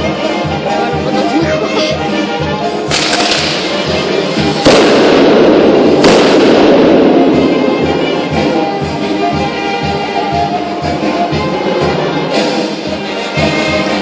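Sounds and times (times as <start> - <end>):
brass band music: 0.0 - 14.0
firework bangs: 2.9 - 8.5.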